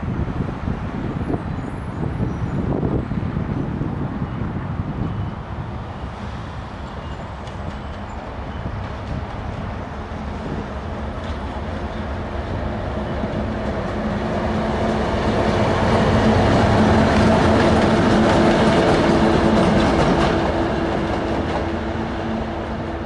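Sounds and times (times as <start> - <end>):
diesel locomotive engine drone: 0.0 - 23.0.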